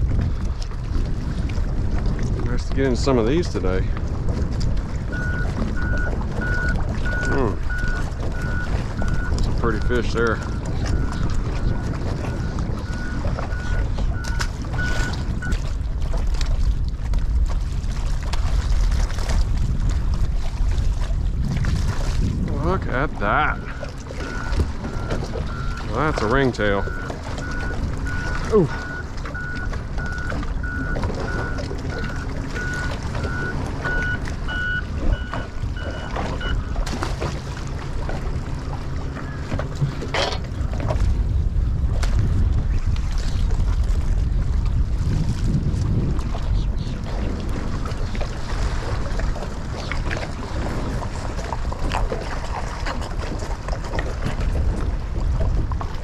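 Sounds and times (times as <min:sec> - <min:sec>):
wind buffeting microphone: 0:00.0 - 0:56.0
faint short beeps: 0:05.2 - 0:09.4, 0:10.4 - 0:15.6, 0:23.5 - 0:36.7.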